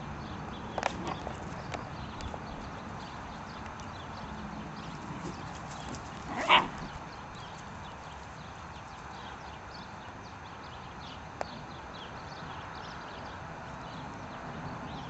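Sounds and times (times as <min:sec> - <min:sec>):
faint outdoor background: 0:00.0 - 0:15.0
puppy barking: 0:06.3 - 0:07.0.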